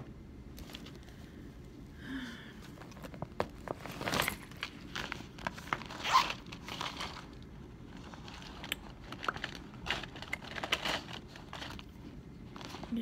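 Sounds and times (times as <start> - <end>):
plastic pouch crinkling: 2.8 - 13.0.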